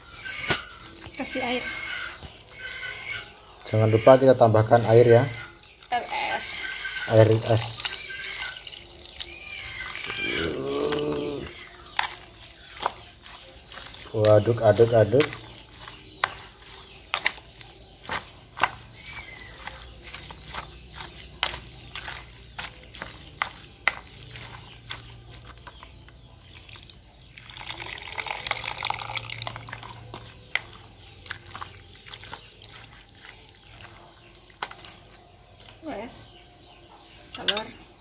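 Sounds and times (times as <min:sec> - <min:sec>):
sloshing and scraping in bowl: 0:00.0 - 0:37.7
spoon stirring wet mixture: 0:00.0 - 0:38.0.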